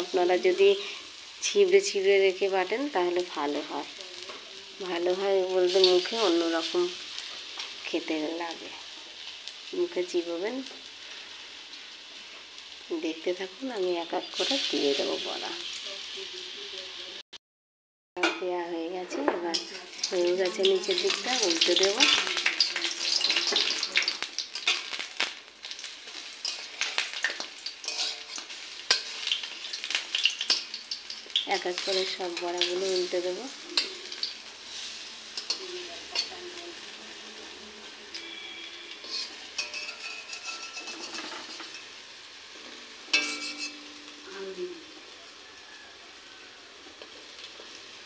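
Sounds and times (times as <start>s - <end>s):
fritters sizzling in oil: 0.0s - 17.2s, 18.2s - 48.0s
metal spatula scraping a pan: 19.1s - 25.0s, 26.1s - 44.3s
spatula scraping a pan: 26.1s - 30.8s, 38.1s - 44.2s.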